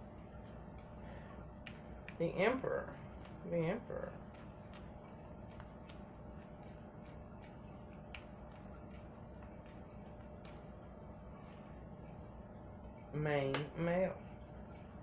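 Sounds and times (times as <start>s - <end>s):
faint hum: 0.0s - 15.0s
cards clicking and rustling: 2.8s - 10.8s.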